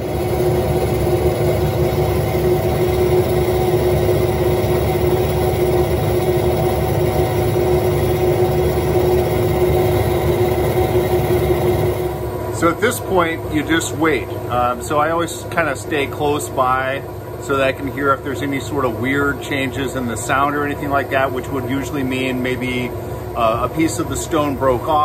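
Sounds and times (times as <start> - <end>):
saw cutting stone hum: 0.0 - 12.8.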